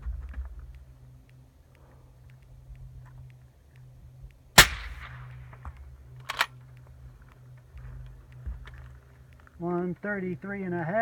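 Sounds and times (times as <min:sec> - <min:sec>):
suppressed rifle shot: 0:04.6 - 0:06.5.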